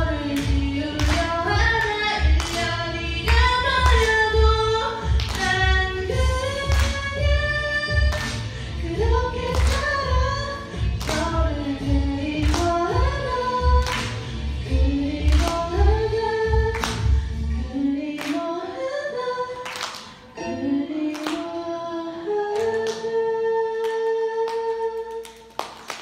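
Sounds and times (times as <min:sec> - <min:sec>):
backing track with bass beat: 0:00.0 - 0:17.6
girl singing into a microphone: 0:00.0 - 0:25.6.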